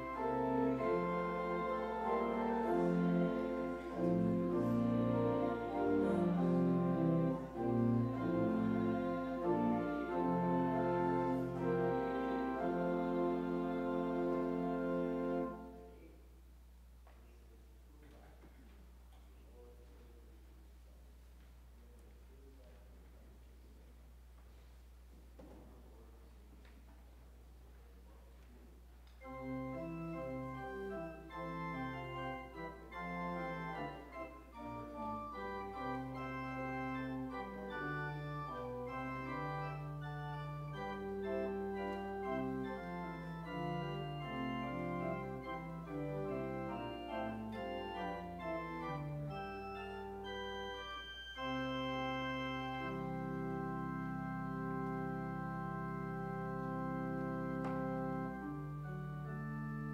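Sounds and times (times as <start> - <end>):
organ playing slow chords: 0.0 - 16.2, 29.2 - 59.9.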